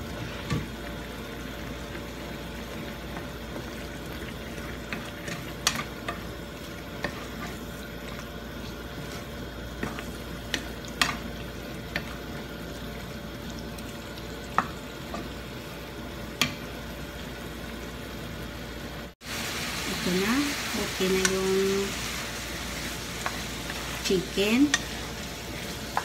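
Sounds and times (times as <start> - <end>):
chicken sizzling in frying pan: 19.2 - 26.0.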